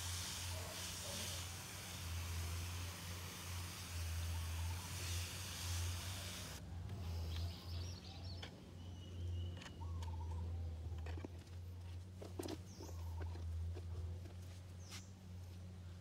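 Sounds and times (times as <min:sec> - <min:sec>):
pressure sprayer hissing: 0:00.0 - 0:07.4
birds chirping: 0:07.0 - 0:10.8, 0:12.4 - 0:13.5.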